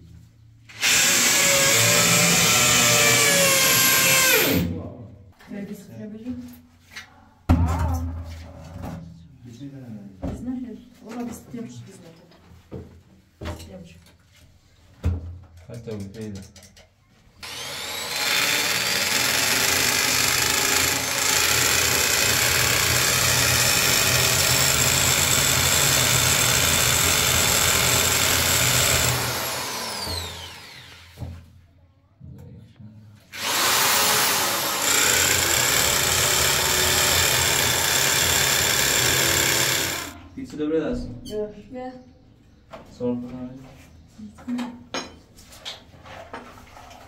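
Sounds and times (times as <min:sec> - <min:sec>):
electric drill boring into tile: 0:00.7 - 0:04.7, 0:17.4 - 0:31.2, 0:33.4 - 0:40.2.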